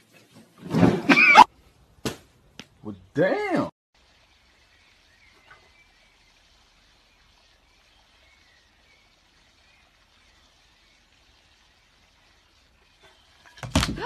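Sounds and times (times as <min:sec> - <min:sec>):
faint bird chirps: 0:04.1 - 0:13.6.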